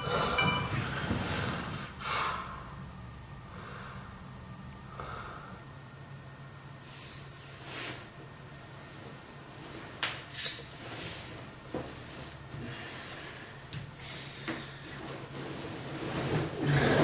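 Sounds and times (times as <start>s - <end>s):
phone alarm tone: 0.0s - 1.0s
man breathing heavily through nose: 0.0s - 2.8s, 3.5s - 4.3s, 4.9s - 5.7s
steady low hum: 0.0s - 17.0s.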